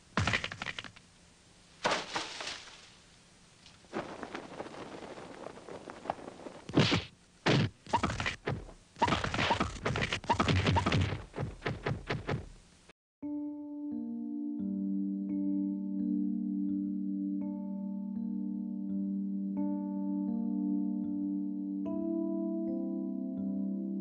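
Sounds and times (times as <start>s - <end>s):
punch and slap hits: 6.7s - 12.5s.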